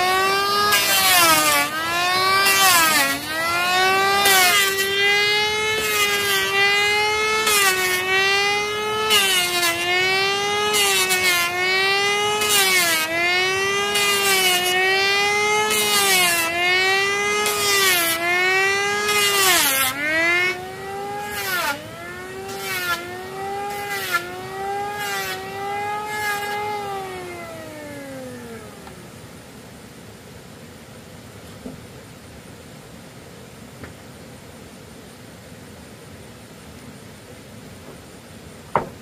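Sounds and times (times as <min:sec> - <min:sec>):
power tool winding down: 0:00.0 - 0:29.2
power tool whining and cutting wood: 0:00.0 - 0:29.3.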